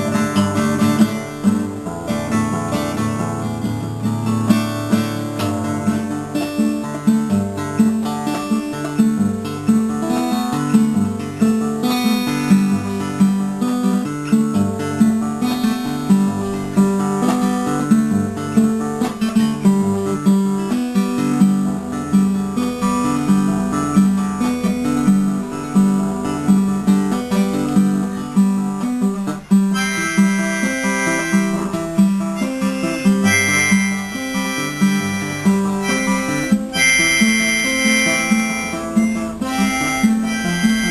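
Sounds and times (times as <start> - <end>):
acoustic guitar strumming: 0.0 - 40.9
harmonica held notes: 29.7 - 40.9.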